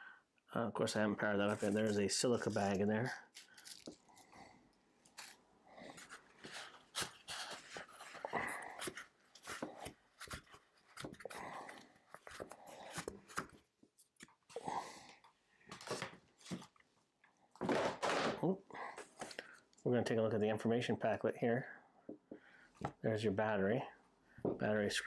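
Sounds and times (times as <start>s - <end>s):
packaging rustling and crinkling: 1.4s - 4.4s, 5.0s - 13.4s.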